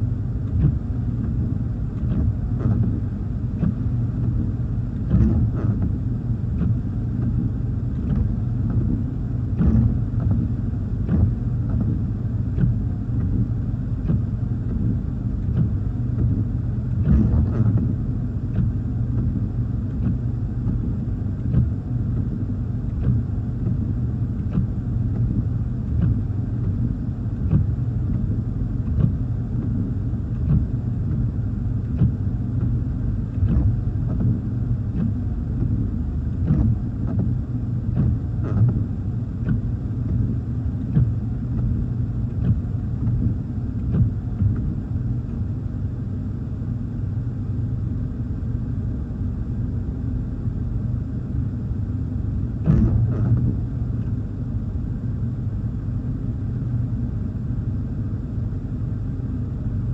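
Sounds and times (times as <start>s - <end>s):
steady low rumble: 0.0s - 59.9s
rain on car: 0.4s - 45.1s
windshield wipers sweeping: 0.4s - 45.8s, 52.5s - 54.5s.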